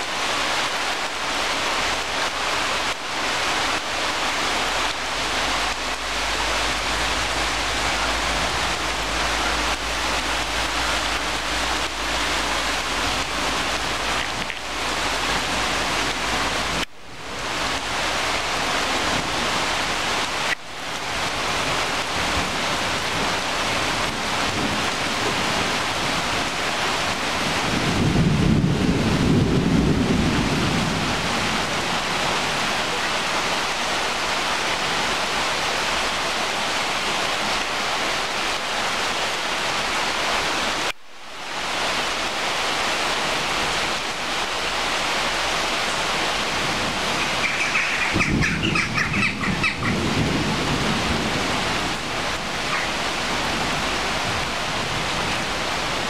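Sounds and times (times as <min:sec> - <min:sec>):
heavy rain on leaves: 0:00.0 - 0:56.0
low rumble: 0:05.0 - 0:16.8.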